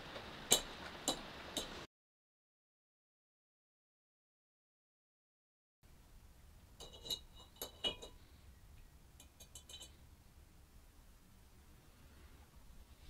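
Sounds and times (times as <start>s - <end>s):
metal parts clinking in glass beaker: 6.8s - 8.2s, 9.2s - 10.0s.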